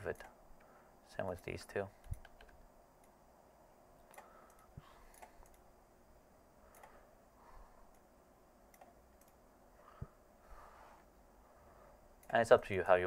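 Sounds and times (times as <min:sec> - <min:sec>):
computer mouse clicks: 0:02.0 - 0:03.2, 0:04.0 - 0:05.7, 0:06.7 - 0:07.0, 0:08.7 - 0:09.4, 0:12.2 - 0:12.5.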